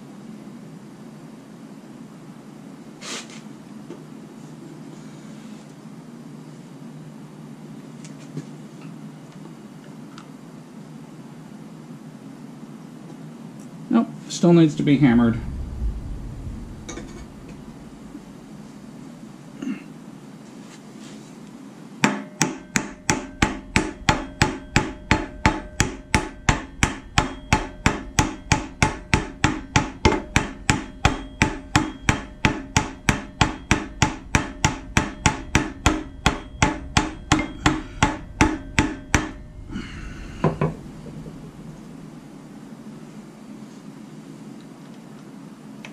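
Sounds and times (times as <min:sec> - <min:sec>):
hammer striking metal: 0:22.0 - 0:42.2
metal ringing: 0:22.1 - 0:42.8.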